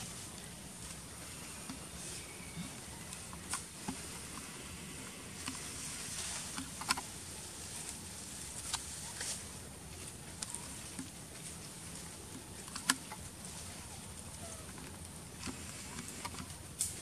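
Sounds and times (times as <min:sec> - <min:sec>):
steady high hiss: 0:00.0 - 0:17.0
small clicks taps and rustles: 0:14.3 - 0:17.0.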